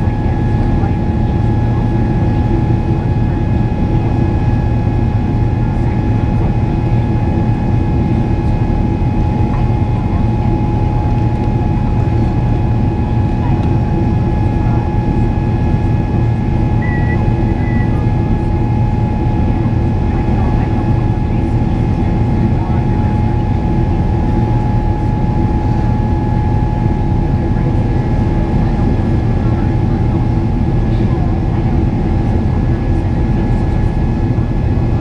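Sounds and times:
jet engine drone in cabin: 0.0 - 35.0.

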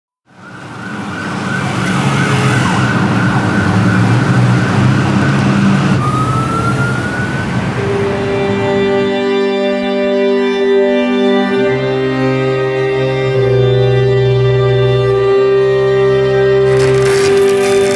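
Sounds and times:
city street traffic: 0.2 - 17.9
siren rising in pitch: 0.3 - 9.1.

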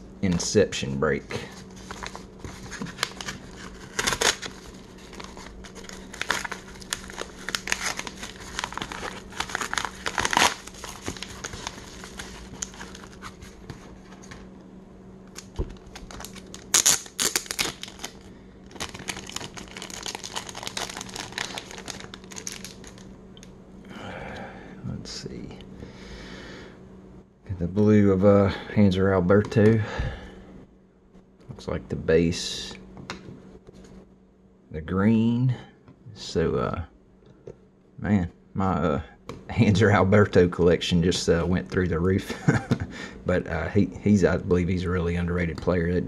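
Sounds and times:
paper envelope crinkling: 1.5 - 14.4, 15.3 - 23.0
plastic bag crinkling: 1.7 - 13.4, 15.4 - 23.0
paper ripping: 1.8 - 13.6, 15.9 - 18.2.

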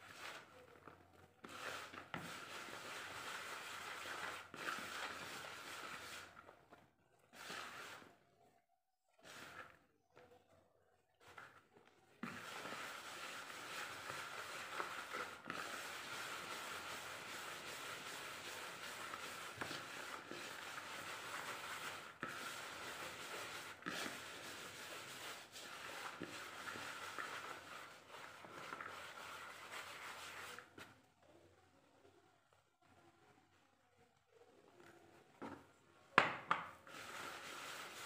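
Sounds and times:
hand stirring flour in plastic bowl: 0.0 - 8.5, 9.2 - 32.6, 33.2 - 38.0.

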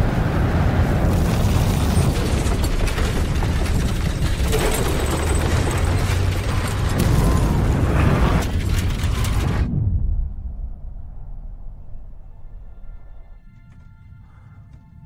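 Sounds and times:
steady low rumble: 0.0 - 14.4
rope creaking and rattling clicks: 1.1 - 9.7.

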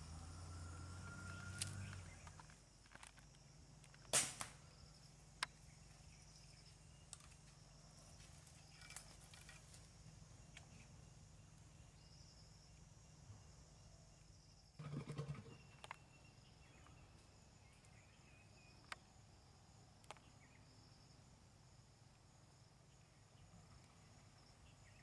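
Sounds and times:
insects buzzing: 0.0 - 25.0
sharp snap: 4.1 - 4.6.

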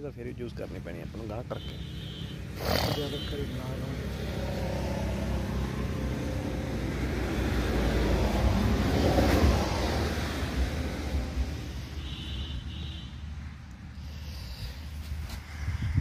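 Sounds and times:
motor vehicle passing: 0.4 - 16.0.

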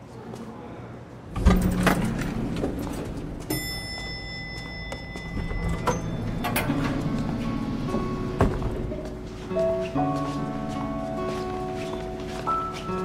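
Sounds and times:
steady high tone: 1.4 - 11.4
background music: 1.4 - 13.0.

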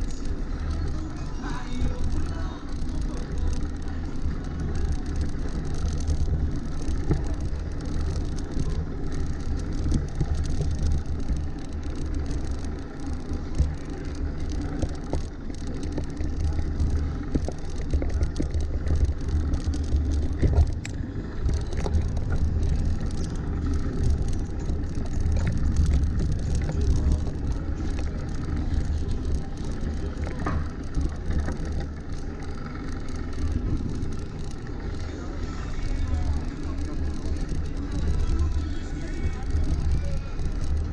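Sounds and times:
rattles and knocks: 0.0 - 35.1
bicycle tyres on cobblestones: 0.0 - 40.9.

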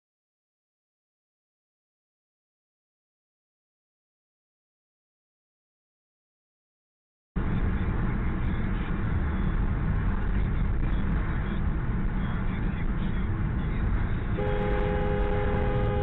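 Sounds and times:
car driving rumble: 7.4 - 16.0
car horn sounding: 14.4 - 16.0.

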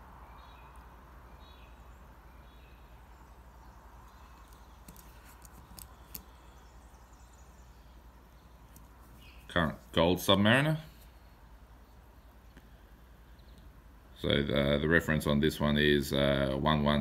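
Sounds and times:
bird chirps: 0.0 - 9.7.

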